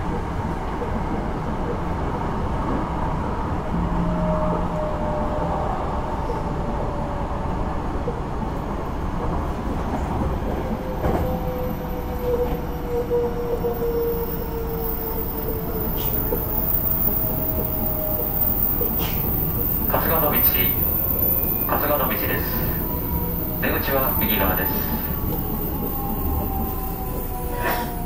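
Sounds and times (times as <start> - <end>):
train wheels rumbling on rail: 0.0 - 28.0.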